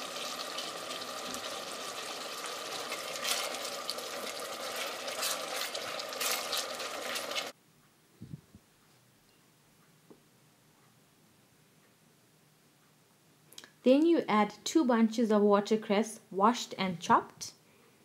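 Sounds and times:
food sizzling in hot oil: 0:00.0 - 0:07.6
spoon stirring and scraping pot: 0:02.7 - 0:07.6.

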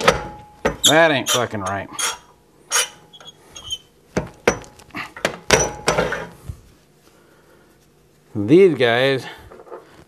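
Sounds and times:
metal clunks and knocks: 0:00.0 - 0:00.9, 0:04.2 - 0:06.3.

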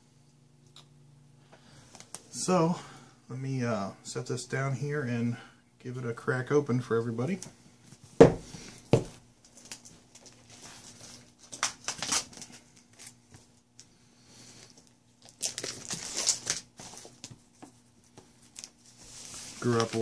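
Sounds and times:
wrapping tearing: 0:09.4 - 0:13.2, 0:14.8 - 0:17.3, 0:18.5 - 0:20.0
wrapping crinkling: 0:09.4 - 0:13.9, 0:14.6 - 0:20.0.

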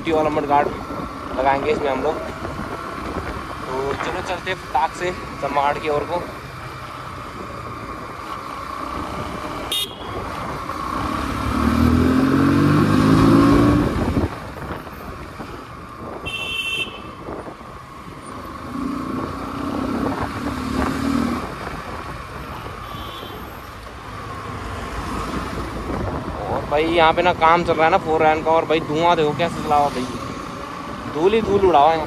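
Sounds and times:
road and wind noise: 0:00.0 - 0:32.0
motorcycle engine accelerating: 0:08.6 - 0:14.5
horn toots: 0:09.7 - 0:10.2, 0:16.2 - 0:17.2.

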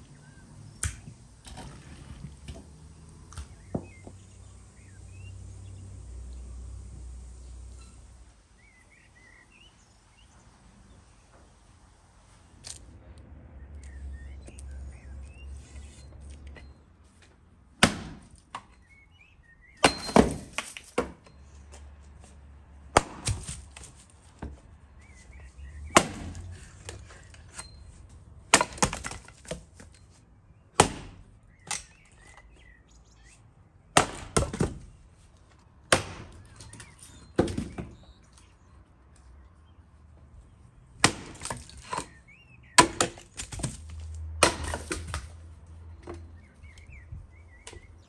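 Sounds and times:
axe chopping firewood: 0:00.8 - 0:01.8, 0:03.3 - 0:04.1, 0:17.8 - 0:18.7, 0:19.8 - 0:21.4, 0:22.9 - 0:24.6, 0:25.3 - 0:27.8, 0:28.5 - 0:30.0, 0:30.7 - 0:32.5, 0:33.9 - 0:35.0, 0:35.8 - 0:38.0, 0:41.0 - 0:45.4
split wood cracking and falling: 0:19.8 - 0:21.4, 0:22.9 - 0:24.1, 0:25.3 - 0:27.7, 0:28.5 - 0:30.0, 0:41.0 - 0:42.2, 0:42.8 - 0:45.4.

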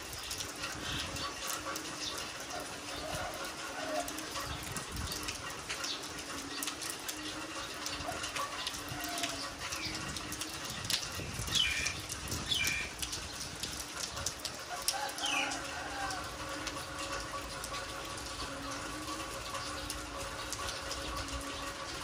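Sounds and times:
drips pattering: 0:00.0 - 0:22.0
steady rain falling: 0:00.0 - 0:22.0
birds chirping: 0:08.6 - 0:13.4.

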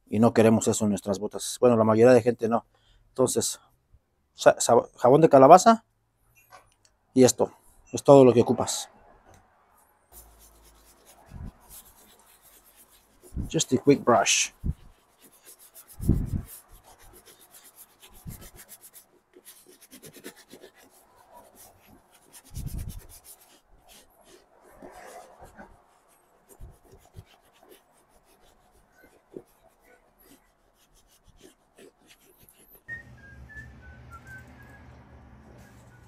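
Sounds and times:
shoe brush scrubbing leather boot: 0:10.2 - 0:32.9.

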